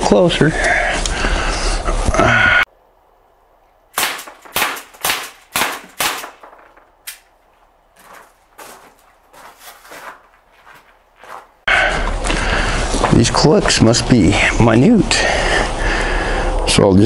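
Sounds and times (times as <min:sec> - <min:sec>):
sharp snap: 0:04.0 - 0:06.4
air pistol shots: 0:04.0 - 0:06.5.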